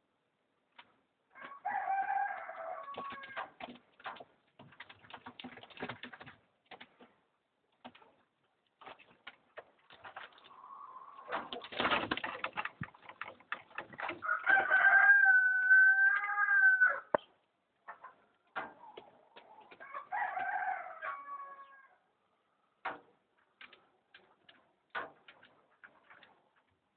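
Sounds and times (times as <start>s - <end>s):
rooster crowing: 1.4s - 3.4s, 14.2s - 17.1s, 19.8s - 22.0s
pigeon wings fluttering: 11.3s - 14.2s.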